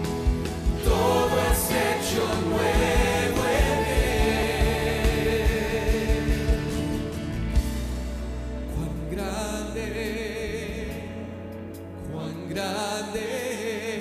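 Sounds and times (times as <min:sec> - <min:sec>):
band playing with steady beat: 0:00.0 - 0:08.2
man singing into a microphone: 0:08.7 - 0:11.3, 0:12.0 - 0:14.0.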